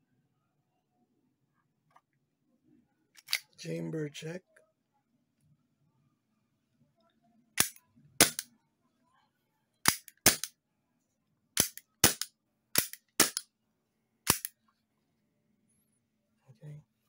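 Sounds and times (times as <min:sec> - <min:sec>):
pistol slide clicking: 0:03.2 - 0:03.5, 0:09.8 - 0:10.5, 0:11.6 - 0:13.4, 0:14.3 - 0:14.5.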